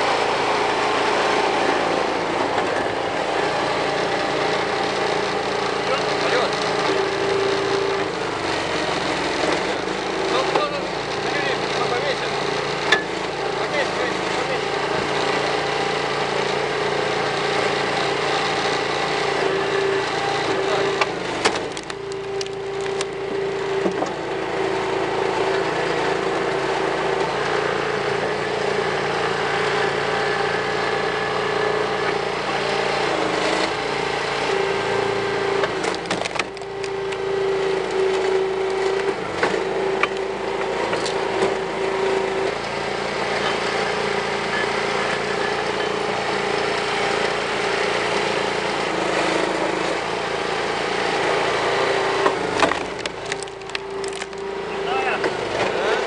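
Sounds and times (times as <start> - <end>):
log splitter engine running: 0.0 - 56.0
wood cracking and splintering: 20.3 - 24.2, 35.5 - 41.6, 51.4 - 54.6.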